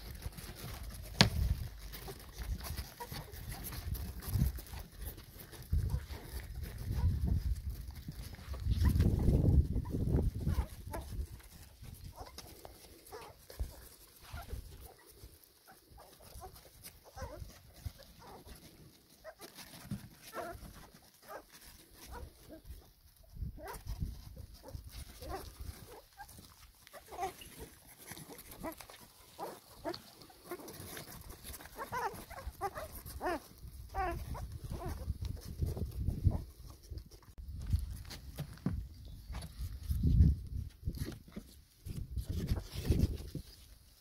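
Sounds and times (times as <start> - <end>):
puppies squeaking and whimpering: 1.8 - 7.3, 13.1 - 21.4, 25.2 - 35.5.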